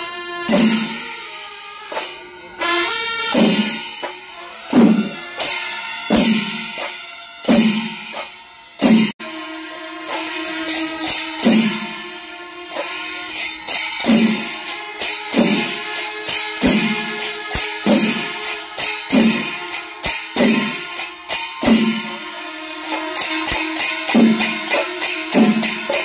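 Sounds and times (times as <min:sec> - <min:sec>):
brass hand cymbals clashing: 0:00.0 - 0:26.0.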